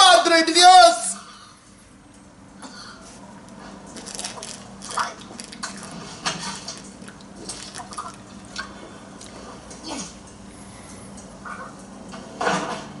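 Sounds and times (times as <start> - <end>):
liquid glugging in bottle: 4.2 - 8.8.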